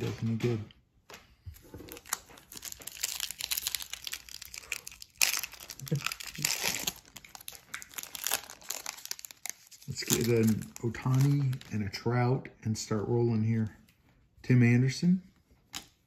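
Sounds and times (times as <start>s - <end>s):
wrapper crinkling and tearing: 1.6s - 11.9s.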